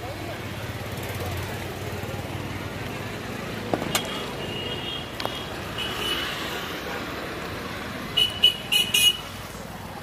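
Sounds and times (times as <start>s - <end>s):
outdoor traffic noise: 0.0s - 10.0s
scooter seat clacking shut: 3.7s - 4.2s
faint vehicle horns: 4.0s - 6.4s, 8.2s - 9.3s.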